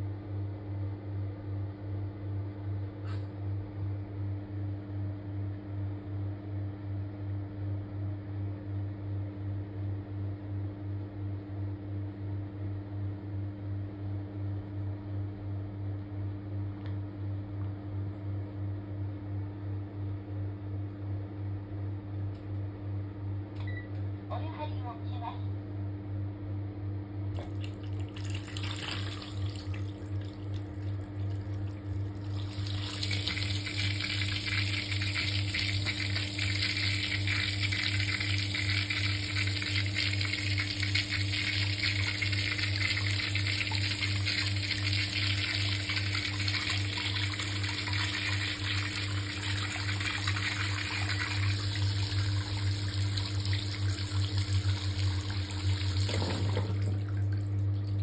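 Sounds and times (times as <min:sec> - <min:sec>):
steady low hum: 0:00.0 - 0:58.0
water running into bathtub: 0:27.4 - 0:58.0.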